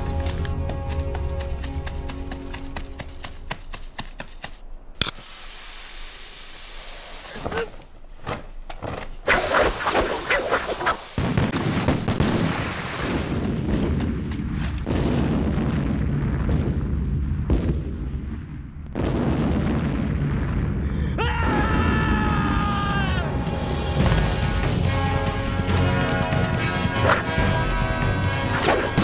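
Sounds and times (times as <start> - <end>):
rumble of explosions: 9.3 - 29.0
man screaming: 21.2 - 23.4.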